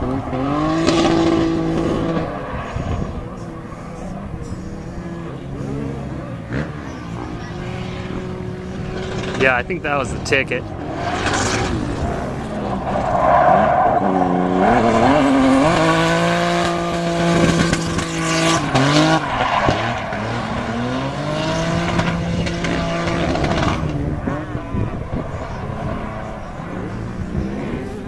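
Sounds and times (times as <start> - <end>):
car engine revving hard: 0.0 - 28.0
tires squealing: 0.0 - 28.0.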